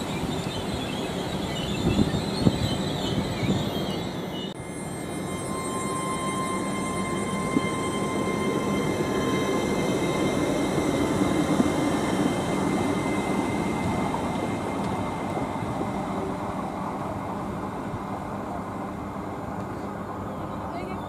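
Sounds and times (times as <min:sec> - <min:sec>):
train passing at speed: 0:00.0 - 0:21.0
high whining tones: 0:00.2 - 0:16.6.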